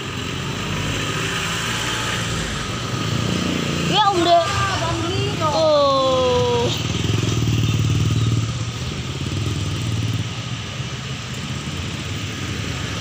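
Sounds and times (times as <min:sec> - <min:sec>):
motorcycle engines passing: 0:00.0 - 0:13.0.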